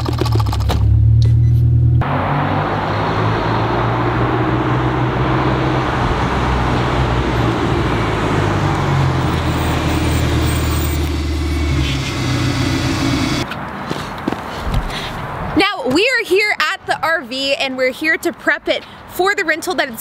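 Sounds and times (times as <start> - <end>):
tyre noise on pavement: 7.0 - 16.8
pickup truck engine running: 9.0 - 13.4.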